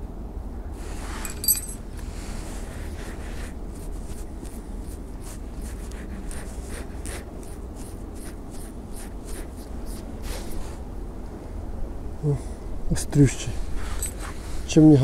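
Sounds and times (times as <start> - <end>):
metallic tink: 1.2 - 1.8.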